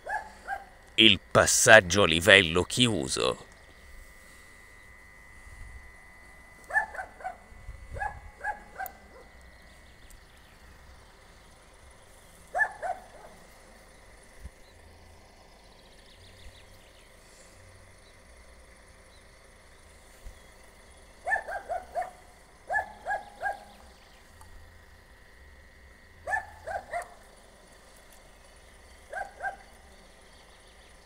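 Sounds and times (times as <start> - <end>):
dog barking: 0.0 - 0.7, 6.7 - 7.4, 8.0 - 9.3, 12.5 - 13.4, 21.2 - 23.7, 26.2 - 27.2, 29.1 - 29.8.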